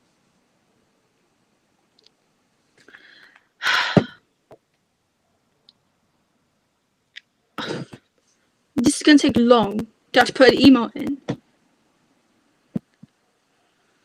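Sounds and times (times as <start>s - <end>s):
faint clicks: 1.9s - 2.2s
soft breaths: 2.6s - 4.4s, 7.6s - 8.7s
person exhaling sharply: 2.8s - 4.2s.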